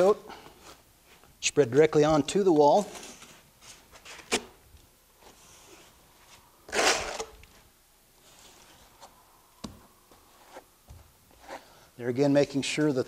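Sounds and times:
plastering trowel scraping: 6.7 - 7.4.

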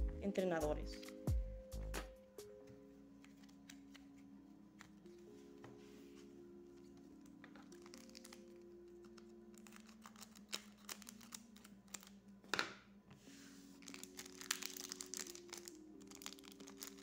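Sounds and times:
soft background music: 0.0 - 17.0
foil wrapper crinkling: 7.6 - 12.2, 13.8 - 17.0.

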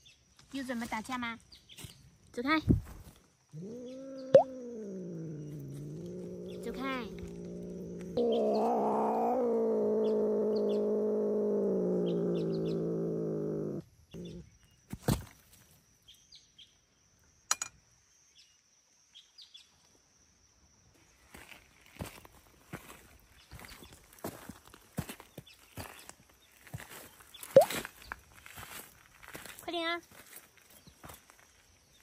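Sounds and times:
faint bird chirps: 3.5 - 8.6
cat yowling: 3.5 - 14.4.

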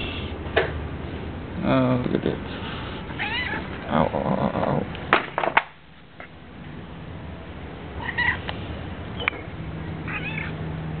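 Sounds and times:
cat meowing: 3.2 - 3.6, 8.0 - 8.4, 10.0 - 10.6.

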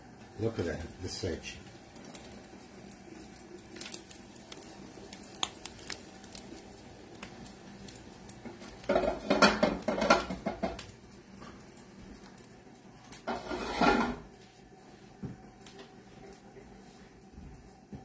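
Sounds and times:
cookware clattering: 8.8 - 10.8
spatula scraping frying pan: 13.3 - 14.2.

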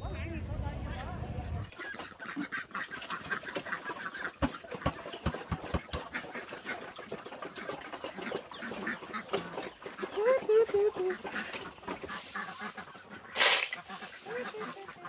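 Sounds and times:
poultry chirping: 0.0 - 15.0
bucket knocking wooden trough: 4.3 - 12.2.

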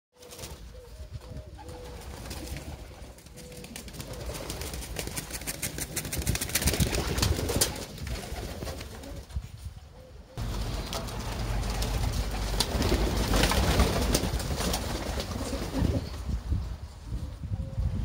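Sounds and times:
pigeons cooing: 0.2 - 5.0
wings flapping: 0.2 - 9.5, 10.4 - 16.4.

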